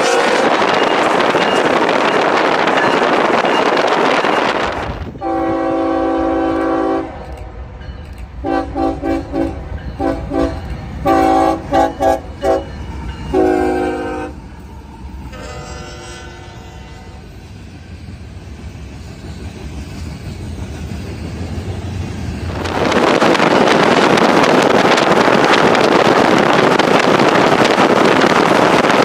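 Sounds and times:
locomotive air horn: 0.0 - 0.8, 5.2 - 7.4, 8.4 - 12.7, 13.3 - 14.5, 15.3 - 17.3
wind on microphone: 0.0 - 7.3, 21.3 - 29.0.

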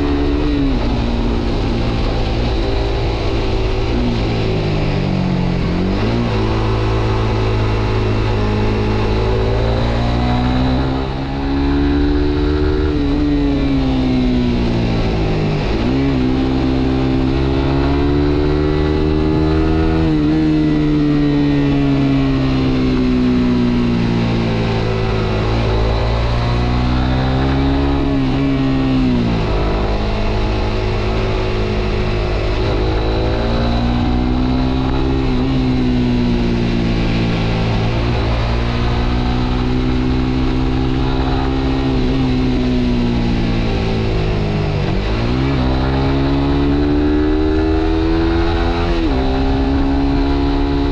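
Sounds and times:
motorcycle engine: 0.0 - 50.9.

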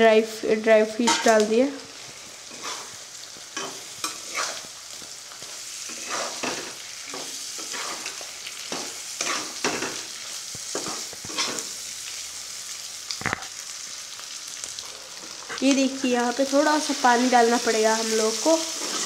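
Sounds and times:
fish sizzling in a pan: 0.4 - 19.0
metal spatula scraping a pan: 2.4 - 3.0, 3.6 - 4.7, 5.8 - 10.0, 10.7 - 11.8, 18.1 - 19.0.

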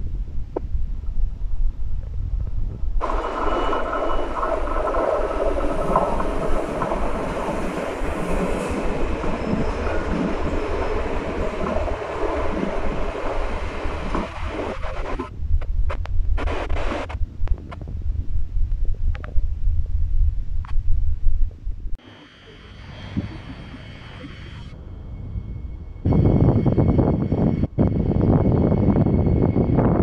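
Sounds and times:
train running on rails: 2.7 - 15.3, 22.0 - 30.0.

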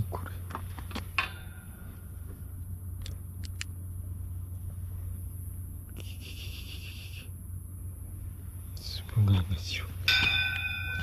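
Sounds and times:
low background rumble: 0.0 - 11.0
sharp clicks: 3.0 - 3.7.

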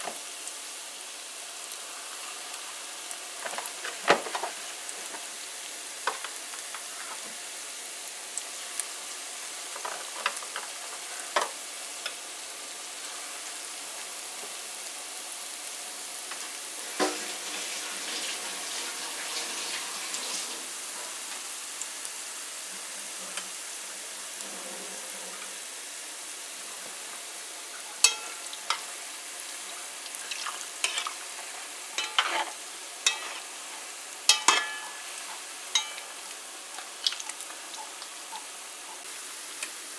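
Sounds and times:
vegetables sizzling in hot oil: 0.0 - 39.9
metal spoon clicking on pan: 28.0 - 28.8, 34.3 - 35.0, 35.8 - 36.1.

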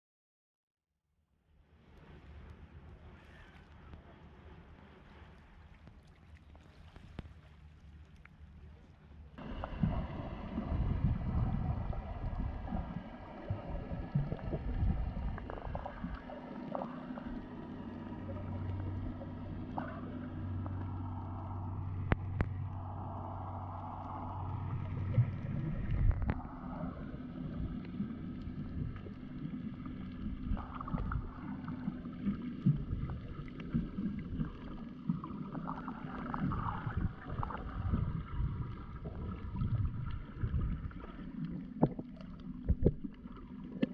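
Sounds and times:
low steady hum: 1.4 - 43.9
water sloshing and gurgling: 1.8 - 43.9.

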